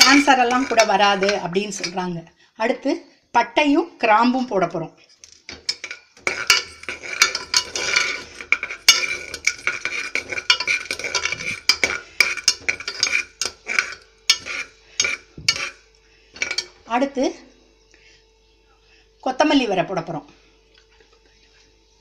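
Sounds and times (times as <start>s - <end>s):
spatula scraping metal pot: 0.0s - 2.1s, 5.6s - 16.8s.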